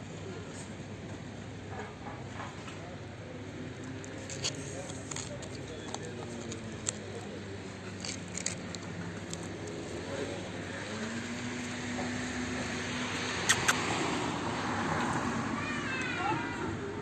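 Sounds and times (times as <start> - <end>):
vehicle passing hum: 7.3 - 17.0.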